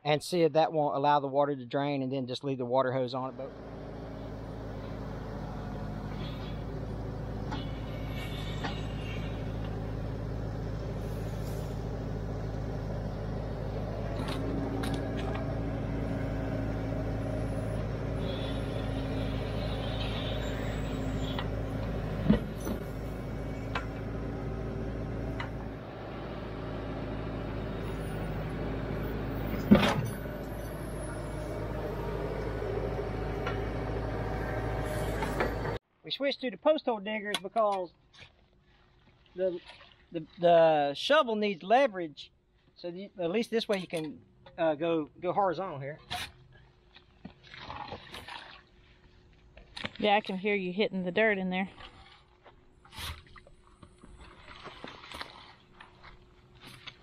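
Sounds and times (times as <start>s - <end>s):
tractor diesel engine running: 3.2s - 35.8s.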